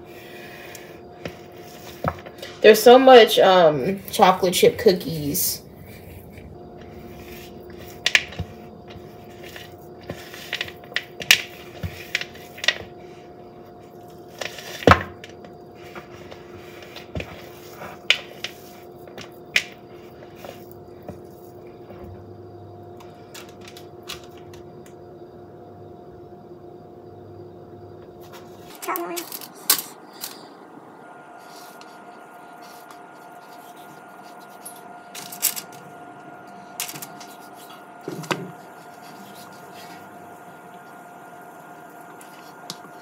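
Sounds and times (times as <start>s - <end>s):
faint hum: 0.0s - 43.0s
spatula scraping plastic bowl: 0.8s - 2.6s, 5.0s - 12.9s.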